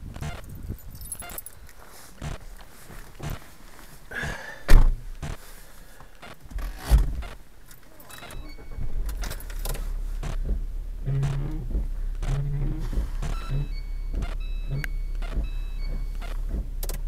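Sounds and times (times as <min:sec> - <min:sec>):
car engine starting and idling: 0:00.0 - 0:17.0
keys jangling: 0:00.4 - 0:01.8, 0:07.6 - 0:10.0
car door slamming: 0:04.2 - 0:05.4, 0:06.5 - 0:07.5, 0:08.2 - 0:17.0
thump: 0:04.2 - 0:05.4, 0:06.8 - 0:07.4, 0:08.8 - 0:14.4, 0:15.3 - 0:17.0.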